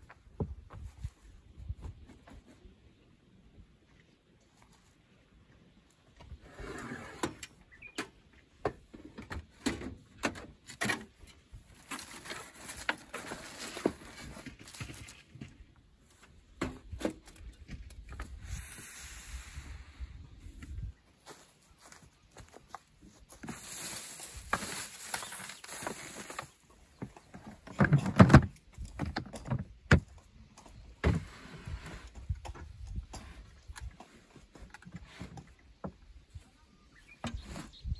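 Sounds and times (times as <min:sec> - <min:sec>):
contents rustling in box: 0:11.8 - 0:15.3, 0:23.4 - 0:26.6
rustling: 0:22.6 - 0:26.9
items knocking and clattering: 0:27.0 - 0:30.1.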